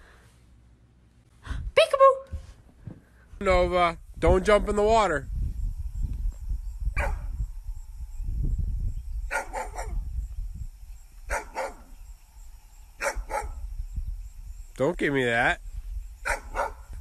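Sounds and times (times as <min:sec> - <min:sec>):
dog barking: 0:07.0 - 0:07.3, 0:09.3 - 0:10.0, 0:11.3 - 0:11.9, 0:13.0 - 0:13.6, 0:16.2 - 0:16.9.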